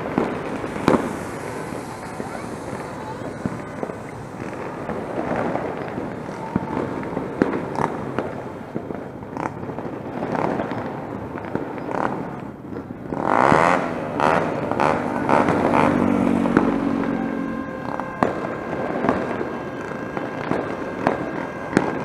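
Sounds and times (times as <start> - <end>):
fireworks cracking and popping: 0.0 - 22.0.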